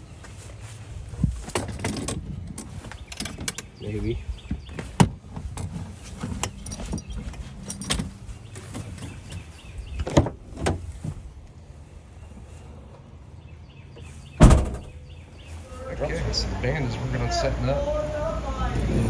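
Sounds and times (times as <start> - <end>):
equipment cases knocking and clunking: 1.2 - 3.8, 4.4 - 11.2
heavy thump: 14.4 - 15.0.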